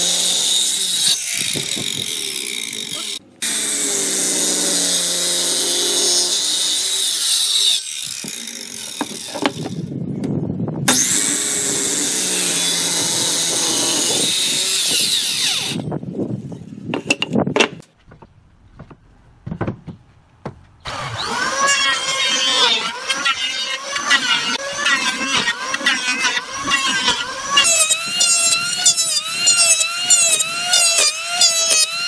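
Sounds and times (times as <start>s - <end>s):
circular saw cutting wood: 0.0s - 9.9s, 10.9s - 15.9s, 20.8s - 32.0s
knocks: 17.0s - 20.7s.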